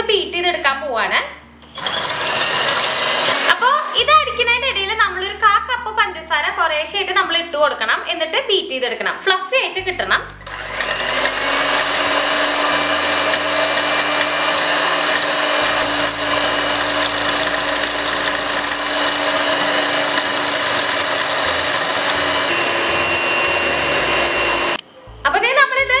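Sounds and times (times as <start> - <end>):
electric hand mixer running: 1.6 - 4.2, 10.4 - 24.8.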